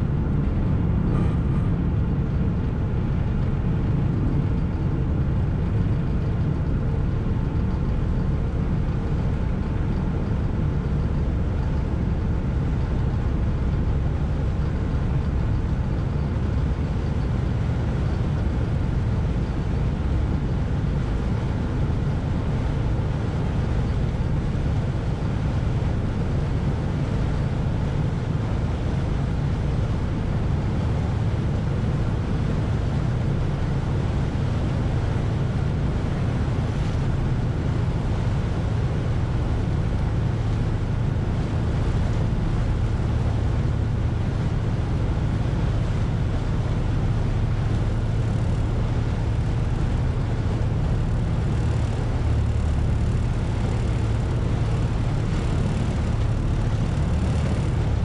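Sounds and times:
ferry engine drone: 0.0 - 58.0
water and wind noise: 0.0 - 58.0.

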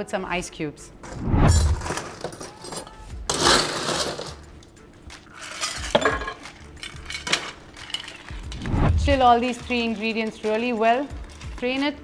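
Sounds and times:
ice cubes rattling into metal tin: 1.9 - 4.5, 5.3 - 8.6
ice and spoon clinking on tin: 5.3 - 8.5.

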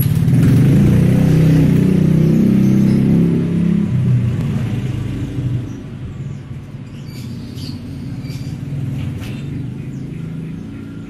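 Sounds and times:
vehicle engine rumbling: 0.0 - 11.0
small bird chirping: 5.5 - 11.0.

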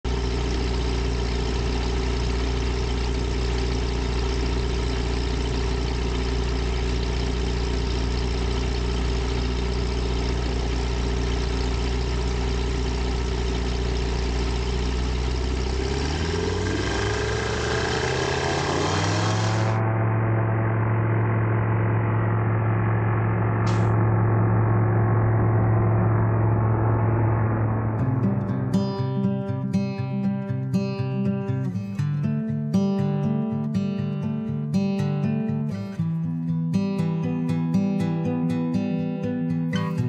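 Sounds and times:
propeller aircraft engine idling: 0.0 - 18.7, 19.4 - 28.4.

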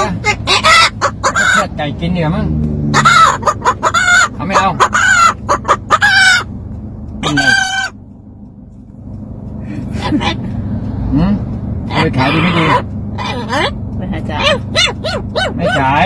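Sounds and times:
parrot cackling calls: 0.0 - 1.7, 3.0 - 6.5, 12.2 - 13.8.

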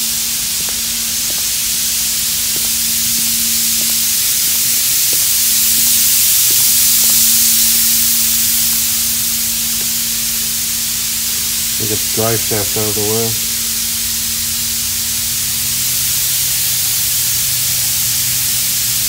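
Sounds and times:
steady loud hiss: 0.0 - 19.0
low hum: 11.6 - 14.7.

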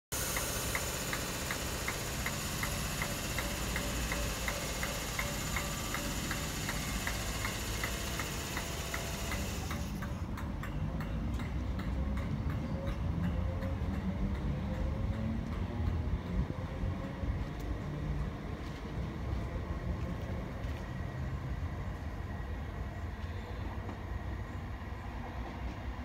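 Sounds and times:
high hiss: 0.1 - 10.1
wheels clicking over rail joints: 0.2 - 16.5
train rumbling past: 0.2 - 26.0.

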